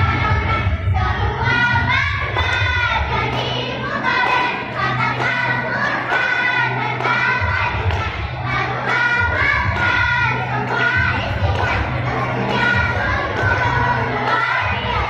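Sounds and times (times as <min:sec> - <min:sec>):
girls singing a cheer: 0:00.0 - 0:15.0.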